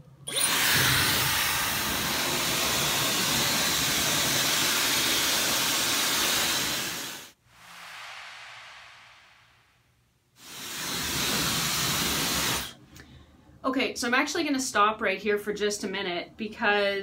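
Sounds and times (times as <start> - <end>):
hair dryer blowing air: 0.3 - 7.8, 10.4 - 12.7
faint rush of air: 7.3 - 10.0.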